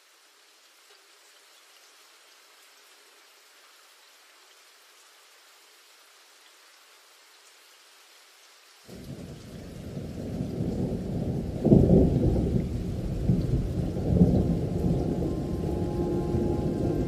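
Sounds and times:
muffled rain: 0:00.0 - 0:17.0
thunder rumble: 0:08.9 - 0:17.0.

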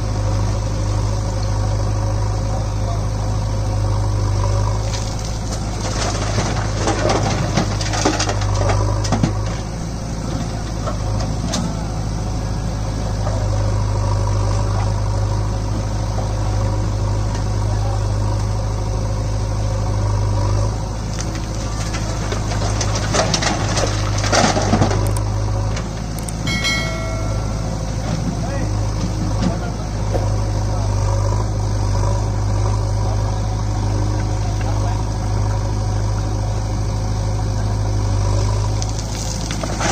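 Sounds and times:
diesel engines running: 0:00.0 - 0:39.9
stones clattering into steel trolley: 0:04.9 - 0:09.6, 0:21.3 - 0:28.6, 0:38.9 - 0:39.9.

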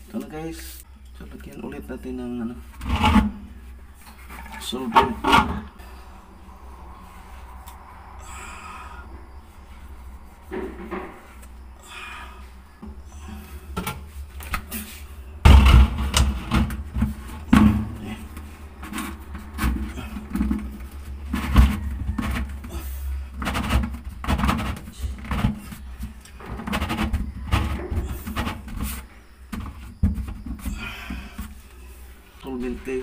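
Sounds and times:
plastic pipe knocks and scrapes: 0:02.7 - 0:05.7, 0:10.4 - 0:11.3, 0:13.7 - 0:31.6.

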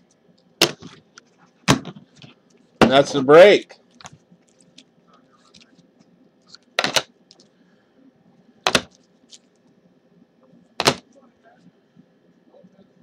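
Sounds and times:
plastic card holders clacking: 0:06.8 - 0:07.1, 0:10.8 - 0:11.0.

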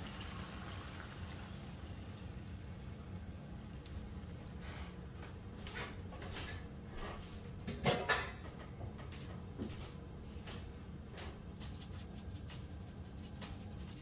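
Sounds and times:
steady low hum: 0:01.5 - 0:14.0
sharp knocks on cookware: 0:07.7 - 0:08.6.

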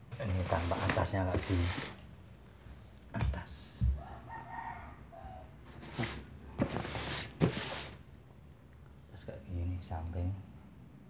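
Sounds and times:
rustling handling noise: 0:00.0 - 0:02.1, 0:05.7 - 0:08.1.

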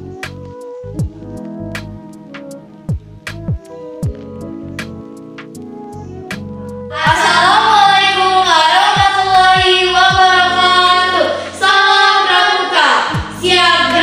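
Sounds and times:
young women singing together: 0:06.9 - 0:14.0.

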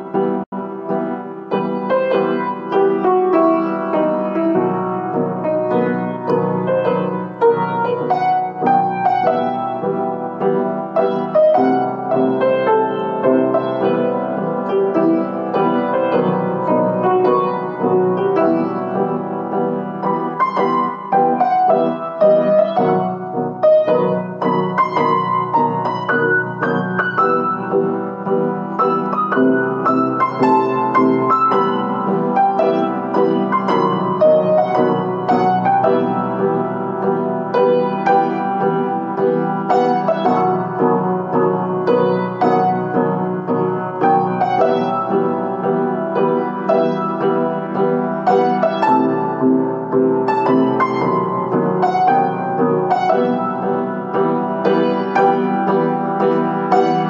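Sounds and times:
solo piano: 0:00.0 - 0:57.0.

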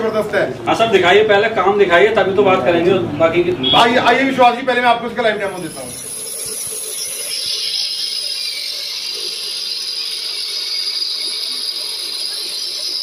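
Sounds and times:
electric spice grinder running: 0:05.5 - 0:13.0.

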